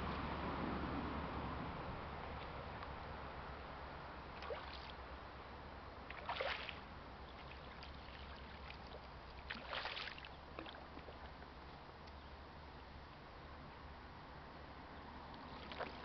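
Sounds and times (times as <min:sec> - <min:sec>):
river hiss: 0:02.0 - 0:13.2
fish splashing at the surface: 0:04.4 - 0:05.0, 0:06.1 - 0:06.8, 0:07.4 - 0:11.2, 0:15.5 - 0:16.0.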